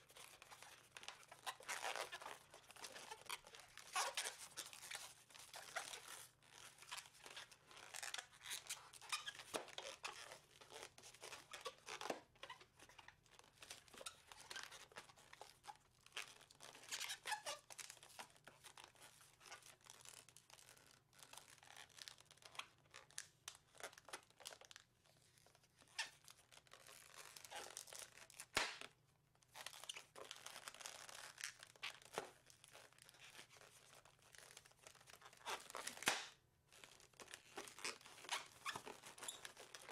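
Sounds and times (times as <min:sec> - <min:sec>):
balloon squeaking and rubbing: 0:00.1 - 0:12.7, 0:29.7 - 0:36.1, 0:36.8 - 0:39.9.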